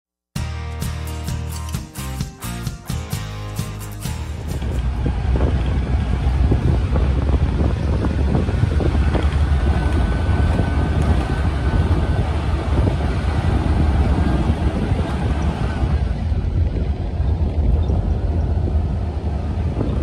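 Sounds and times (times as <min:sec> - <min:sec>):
vehicle driving on gravel: 0:04.0 - 0:20.0
wind buffeting microphone: 0:04.0 - 0:20.0.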